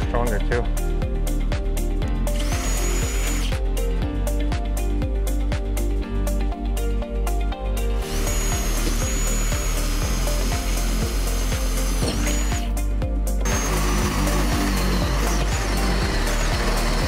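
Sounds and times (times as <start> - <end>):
drill whining through sheet metal: 2.3 - 3.6, 8.0 - 17.0.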